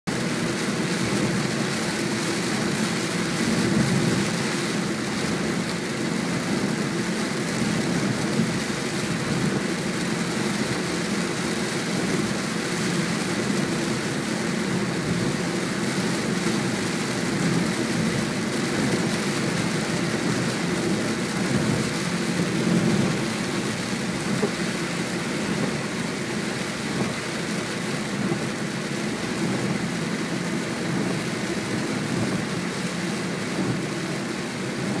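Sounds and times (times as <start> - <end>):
car road and tyre noise: 0.1 - 35.0
rain on windshield: 0.1 - 35.0.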